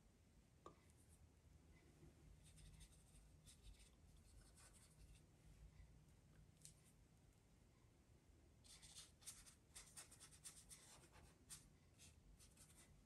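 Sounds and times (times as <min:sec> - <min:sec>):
scratchy paintbrush strokes: 0:02.4 - 0:05.3, 0:08.6 - 0:13.0.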